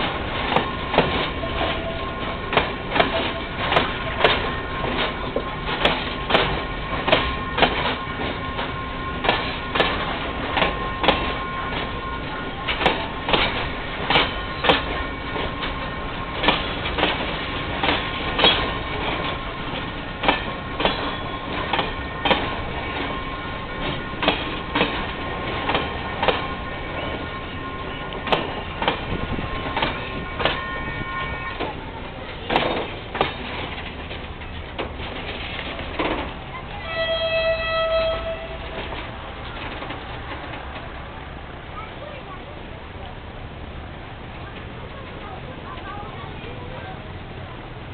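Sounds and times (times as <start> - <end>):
wheels clacking over rail joint: 0.0 - 43.2
freight wagons rumbling: 0.0 - 47.9
locomotive horn: 1.2 - 17.0, 20.6 - 31.9, 36.8 - 39.4.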